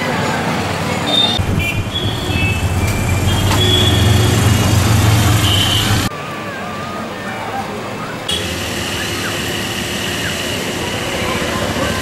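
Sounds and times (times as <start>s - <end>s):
small engine low rumble: 1.4s - 6.1s.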